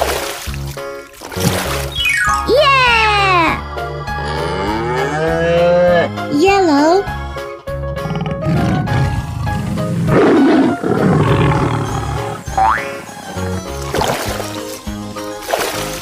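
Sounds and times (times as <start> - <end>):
children's background music: 0.0 - 16.0
rising pitched call: 1.9 - 2.5
rough animal roar: 4.0 - 6.2, 7.9 - 13.6.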